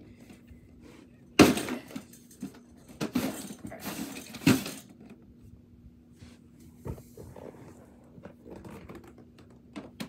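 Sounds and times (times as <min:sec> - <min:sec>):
plastic scraping: 0:06.9 - 0:10.0.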